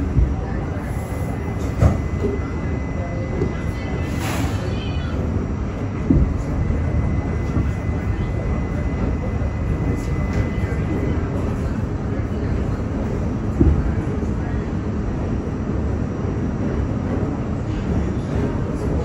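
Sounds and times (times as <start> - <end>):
subway car rumbling and rattling: 0.0 - 19.0
loud knocks: 6.0 - 6.5.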